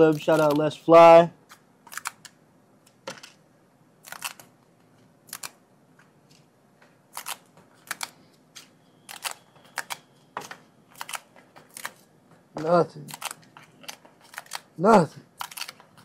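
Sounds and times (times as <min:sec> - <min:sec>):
paper tickets being torn: 0:00.0 - 0:00.9, 0:12.6 - 0:16.0.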